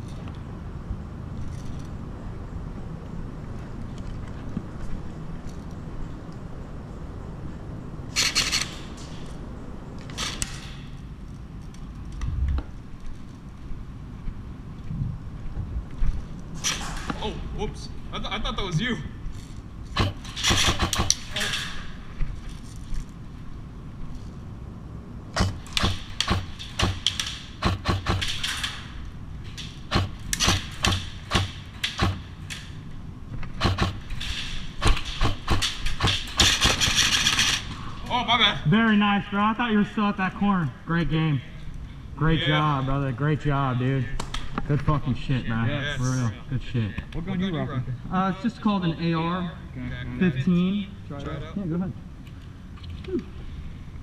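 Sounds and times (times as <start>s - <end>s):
airsoft rifle rapid fire: 20.0s - 21.4s, 25.4s - 28.5s, 29.9s - 32.3s, 33.5s - 34.2s, 34.8s - 37.6s.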